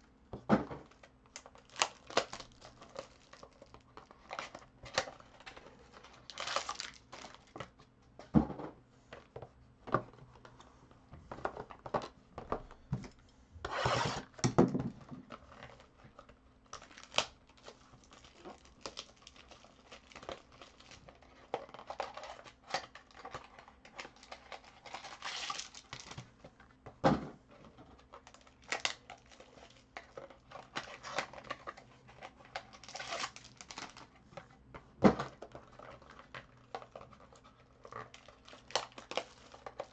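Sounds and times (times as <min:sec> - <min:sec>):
foil wrappers crinkling and tearing: 0:01.3 - 0:07.6, 0:15.4 - 0:26.4, 0:28.0 - 0:34.1, 0:35.4 - 0:39.9.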